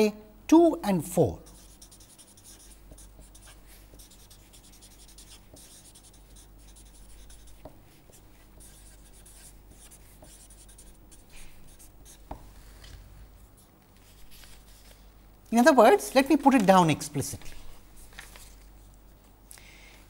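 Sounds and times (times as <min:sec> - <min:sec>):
low steady hum: 0:00.0 - 0:20.0
marker scratching on paper: 0:01.4 - 0:12.8.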